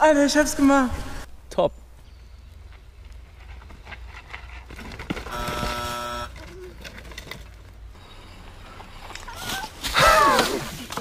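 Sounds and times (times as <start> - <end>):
harsh buzzer tone: 5.3 - 6.4.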